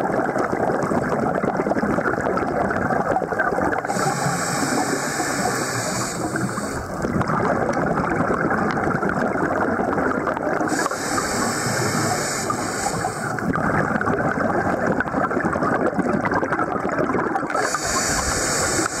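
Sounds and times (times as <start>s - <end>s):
underwater rushing and bubbling: 0.0s - 19.0s
regulator hiss: 3.9s - 7.0s, 10.7s - 13.5s, 17.6s - 19.0s.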